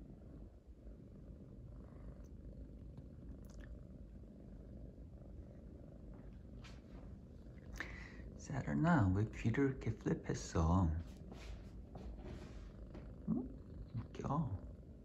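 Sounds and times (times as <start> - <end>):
kitten purring: 0.0 - 15.0
faint ticks: 2.2 - 3.8.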